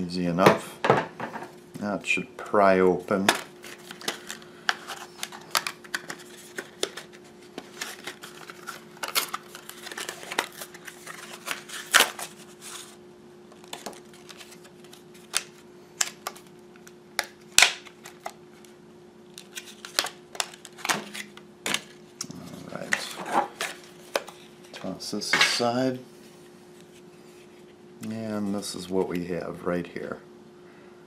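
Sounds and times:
faint steady hum: 0:00.0 - 0:31.0
plastic package crinkling and snapping: 0:03.1 - 0:24.8.

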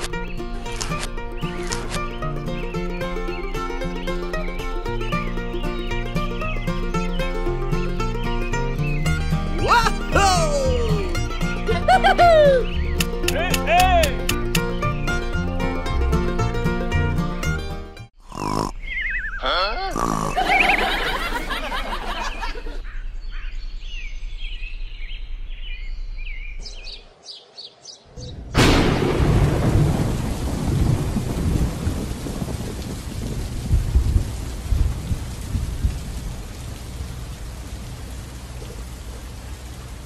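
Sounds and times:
heavy rain hiss: 0:00.0 - 0:17.0, 0:28.2 - 0:40.0
rolling thunder rumbles: 0:28.2 - 0:38.0
thunderclap: 0:28.3 - 0:36.5.

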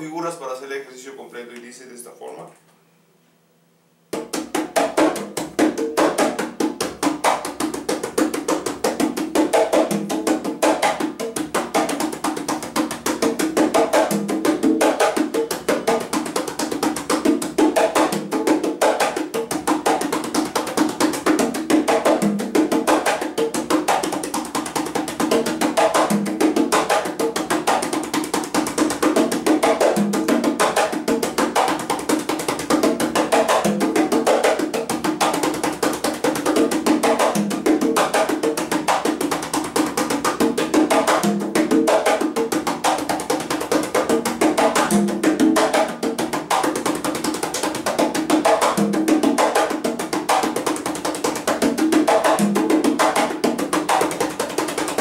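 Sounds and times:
conga played by hand: 0:04.1 - 0:55.0.

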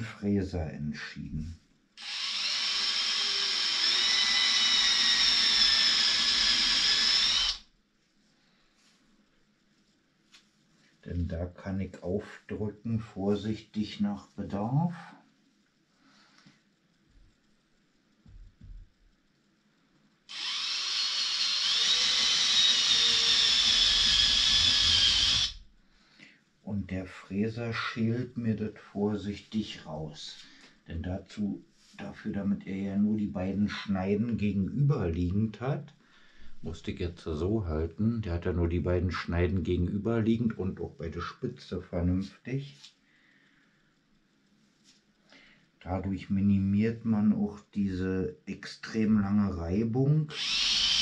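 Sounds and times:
cordless drill whining: 0:02.0 - 0:07.6, 0:20.3 - 0:25.6, 0:50.3 - 0:51.0.

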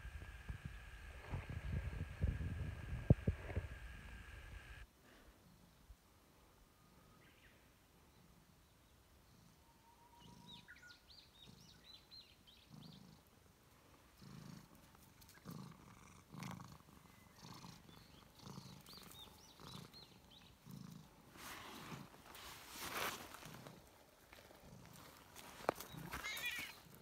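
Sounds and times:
cat purring: 0:11.3 - 0:26.1.

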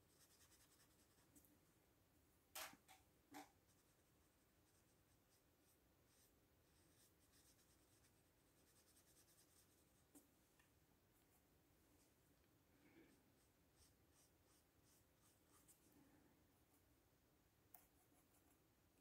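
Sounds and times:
paintbrush brushing on paper: 0:00.0 - 0:01.5, 0:03.4 - 0:10.5, 0:13.0 - 0:16.0, 0:17.7 - 0:18.7.

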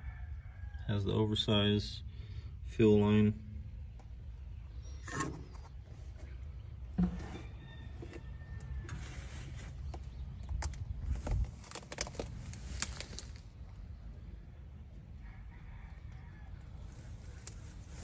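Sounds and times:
low wind rumble: 0:01.3 - 0:18.0
footsteps through dry grass: 0:11.2 - 0:13.5.

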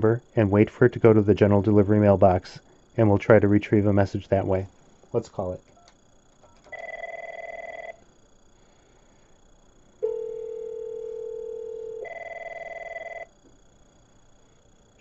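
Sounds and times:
low ringback tone: 0:06.4 - 0:08.0, 0:10.0 - 0:13.4
warbling electronic phone ring: 0:06.4 - 0:08.0, 0:10.0 - 0:13.3.

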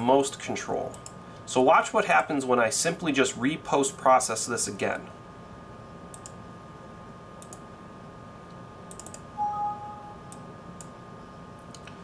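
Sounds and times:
computer mouse clicks: 0:06.1 - 0:06.4, 0:07.4 - 0:07.6, 0:08.9 - 0:09.2
short alert chime: 0:09.4 - 0:10.3.

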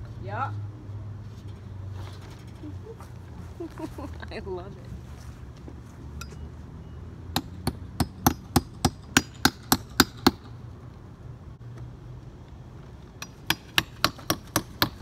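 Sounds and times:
hammer striking wall: 0:13.2 - 0:15.0.

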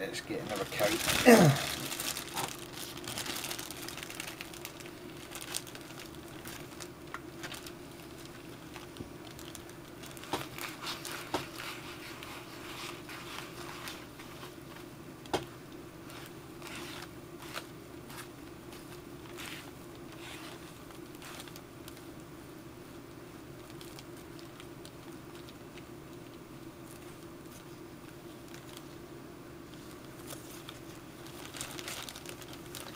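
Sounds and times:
plastic bag crinkling: 0:00.3 - 0:14.6, 0:16.0 - 0:22.1, 0:23.6 - 0:25.6, 0:28.4 - 0:28.9, 0:29.7 - 0:32.9.

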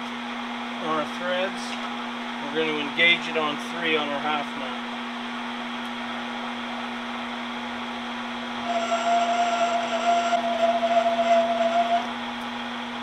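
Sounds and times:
metal lathe humming: 0:08.4 - 0:12.3
high-pitched tool chatter squeal: 0:08.6 - 0:12.1.

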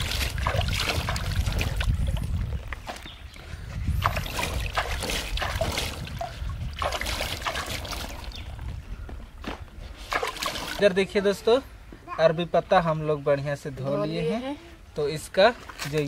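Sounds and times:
water trickling: 0:00.0 - 0:02.8, 0:03.9 - 0:08.6
hands splashing water: 0:00.0 - 0:03.0, 0:03.9 - 0:08.5, 0:10.0 - 0:10.9.

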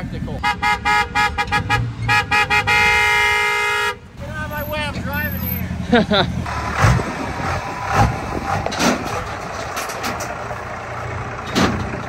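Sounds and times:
diesel engine running: 0:00.0 - 0:12.0
metal clunks from ramps: 0:08.0 - 0:10.7, 0:11.4 - 0:12.0.

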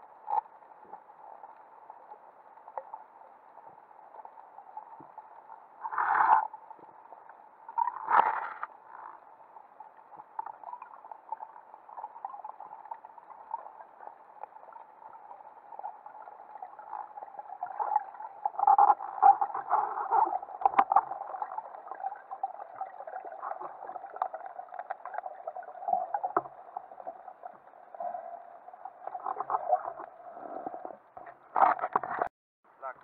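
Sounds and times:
crackles and clicks: 0:00.0 - 0:32.3
underwater hiss: 0:05.8 - 0:06.5
bubbling: 0:10.3 - 0:31.2.

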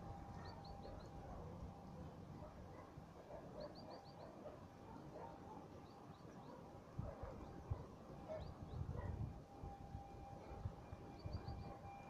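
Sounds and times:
faint bird chirps: 0:00.0 - 0:02.1, 0:03.3 - 0:09.1, 0:10.8 - 0:12.0
faint steady tone: 0:00.0 - 0:12.0
wind rumble on microphone: 0:06.9 - 0:12.0.

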